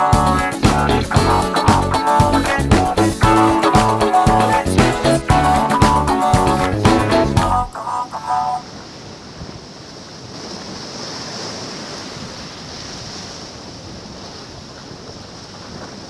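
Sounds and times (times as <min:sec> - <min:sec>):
guitar music: 0:00.0 - 0:08.2
ocean surf washing on shore: 0:07.7 - 0:16.0.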